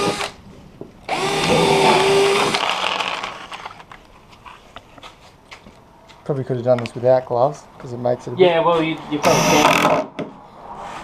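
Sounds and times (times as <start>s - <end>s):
cordless drill whining: 1.1s - 3.6s, 9.2s - 10.0s.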